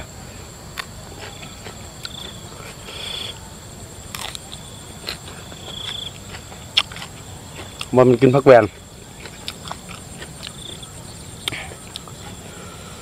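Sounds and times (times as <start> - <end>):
buzzy insect trills: 0.0 - 13.0
insects chirping: 0.0 - 13.0
crisp crunches of biting stems: 4.1 - 8.0.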